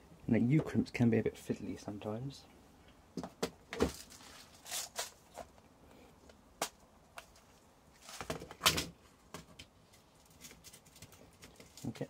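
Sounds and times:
rustling: 0:03.8 - 0:05.6, 0:07.1 - 0:09.2.

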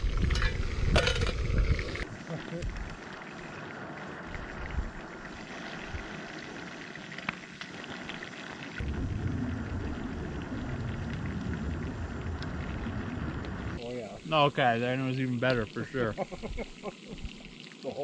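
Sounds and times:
fish and bacon sizzling in pan: 0:00.0 - 0:18.0
low rumble: 0:08.8 - 0:13.8.

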